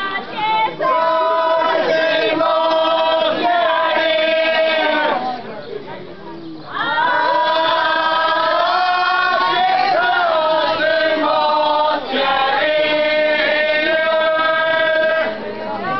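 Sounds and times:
group of women singing: 0.0s - 5.5s, 6.7s - 15.9s.

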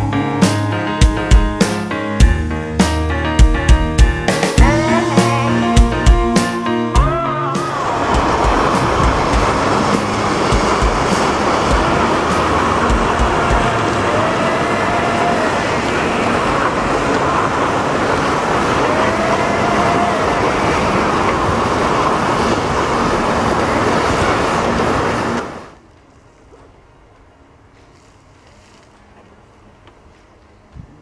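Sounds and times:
loud rushing hiss: 0.0s - 25.7s.

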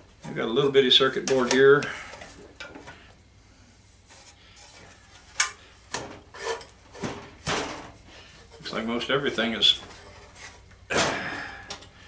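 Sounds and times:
metal clunks and knocks: 5.9s - 8.0s.

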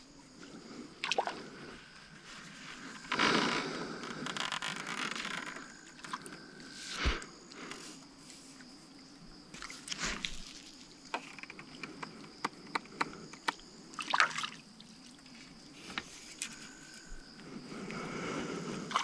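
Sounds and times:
water splashing: 14.0s - 14.6s.

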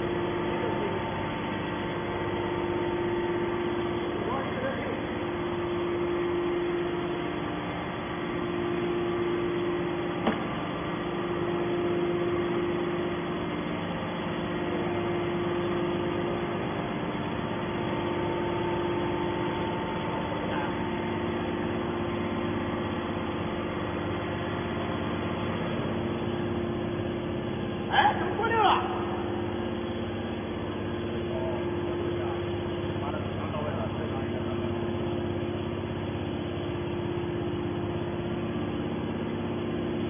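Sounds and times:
hydraulic power unit humming: 0.0s - 40.0s.

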